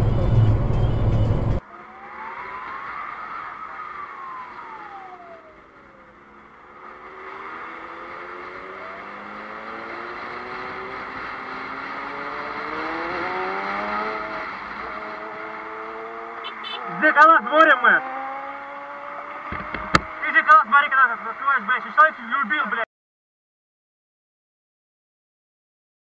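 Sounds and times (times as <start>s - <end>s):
wind and road noise: 0.0s - 22.8s
motorcycle engine revving: 5.9s - 20.4s.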